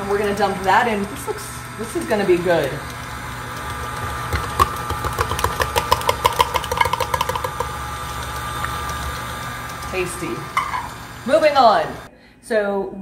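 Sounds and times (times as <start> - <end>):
stand mixer motor humming: 0.0 - 12.1
sharp clicks and taps: 2.5 - 10.0.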